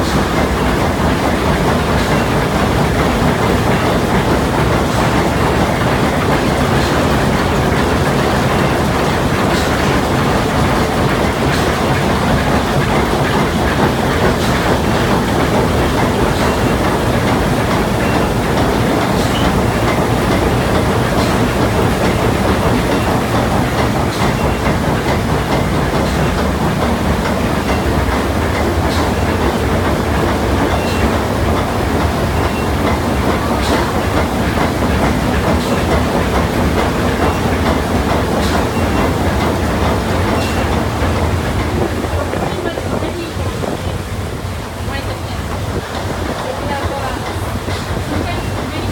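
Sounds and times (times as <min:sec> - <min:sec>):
steam engine running: 0:00.0 - 0:48.9.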